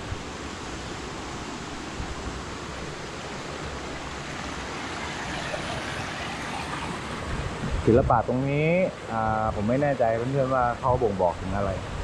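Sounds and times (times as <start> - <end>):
waterfall stream rushing: 0.0 - 8.0.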